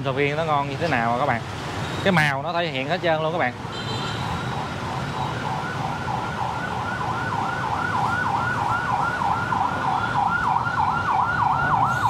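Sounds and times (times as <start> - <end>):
low traffic rumble: 0.0 - 12.0
emergency siren yelping: 4.6 - 12.0.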